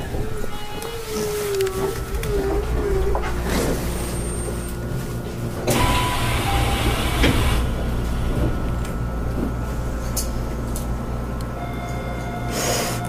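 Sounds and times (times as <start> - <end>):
train car hum: 0.0 - 13.0.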